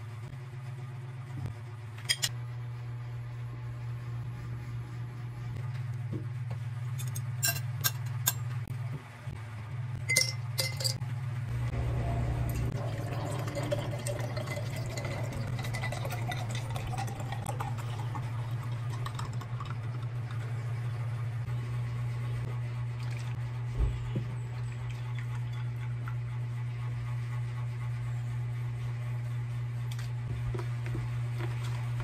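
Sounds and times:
low hum: 0.0 - 32.0
juice pouring into glass jar: 12.5 - 20.3.

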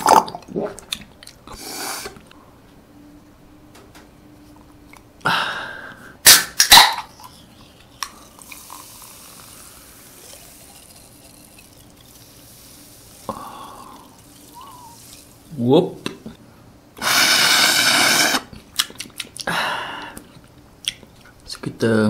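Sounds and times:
cola pouring and fizzing: 8.2 - 15.5.

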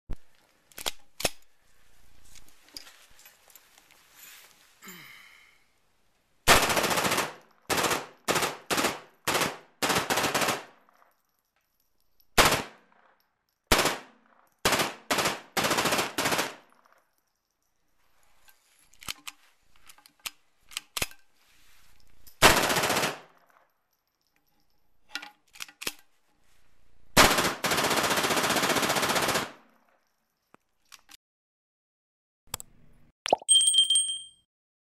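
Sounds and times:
metallic clicks of gun handling: 0.6 - 1.5, 18.4 - 21.3, 23.3 - 26.2, 29.7 - 31.2
machine gun firing bursts: 6.5 - 10.8, 12.4 - 12.8, 13.7 - 16.6, 22.4 - 23.3, 27.2 - 29.6.

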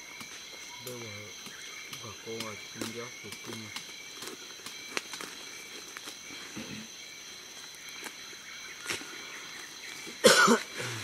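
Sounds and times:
high-pitched insect drone: 0.0 - 11.0
sticks and leaves crackling: 0.0 - 11.0.

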